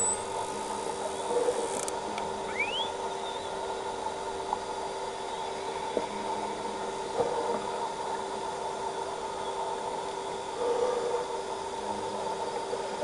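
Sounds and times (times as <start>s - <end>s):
underwater hiss and hum: 0.0s - 13.0s
whale whistle: 2.5s - 3.4s.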